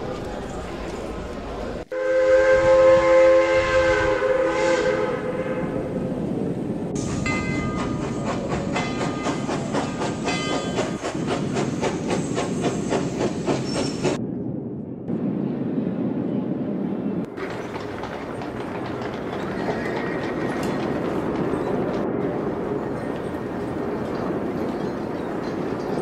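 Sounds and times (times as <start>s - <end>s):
train rumble: 0.0s - 26.0s
train wheels clattering over rail joints: 7.0s - 14.2s, 17.3s - 22.4s.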